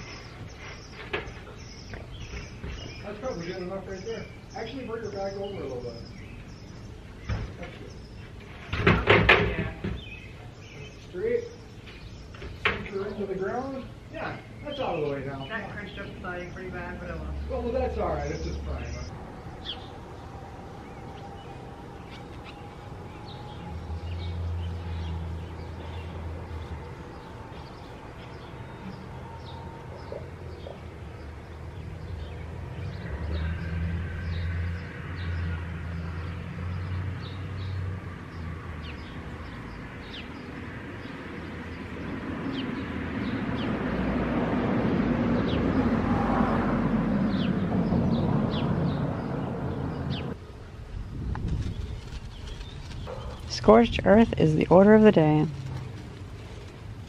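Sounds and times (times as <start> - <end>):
birds chirping: 0.0 - 57.0
low hum: 18.7 - 36.4.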